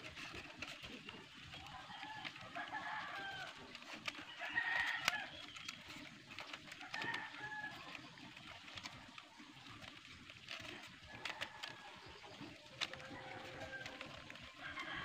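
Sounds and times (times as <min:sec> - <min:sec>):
bamboo strips clicking and rustling: 0:00.0 - 0:15.0
chickens clucking: 0:00.0 - 0:15.0
rooster crowing: 0:01.8 - 0:05.3, 0:13.0 - 0:15.0.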